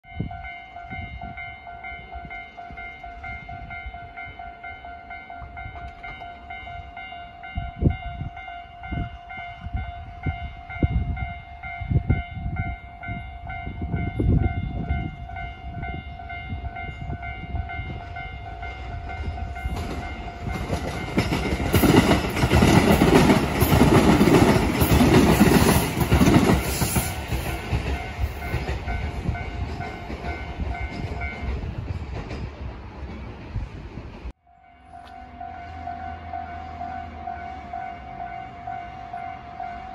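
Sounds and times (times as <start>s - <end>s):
train wheels rolling: 16.8s - 36.3s.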